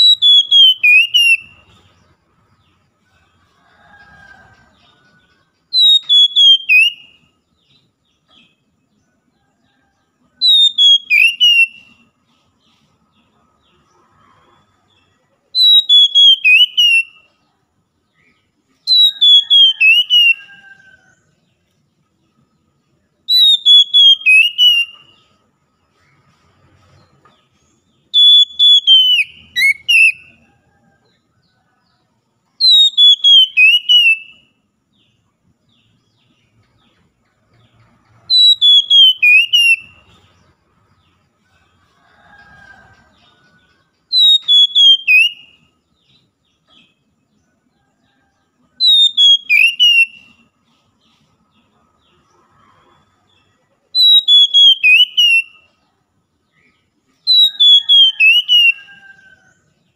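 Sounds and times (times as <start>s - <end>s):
bird singing whistled notes: 0.0s - 2.0s, 4.7s - 8.6s, 10.4s - 12.2s, 15.0s - 17.4s, 18.2s - 21.2s, 23.2s - 25.4s, 28.0s - 30.5s, 32.6s - 34.6s, 38.1s - 40.3s, 44.1s - 47.0s, 48.8s - 50.6s, 54.0s - 55.7s, 56.5s - 59.1s.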